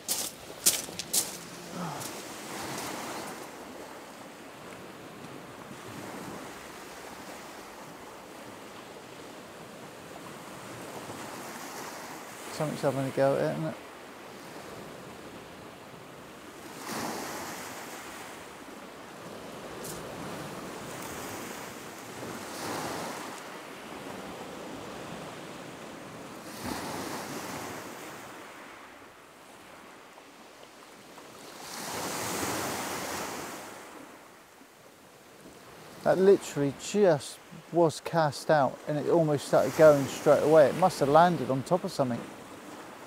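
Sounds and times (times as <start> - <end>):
waves breaking on shingle: 0.0 - 3.6.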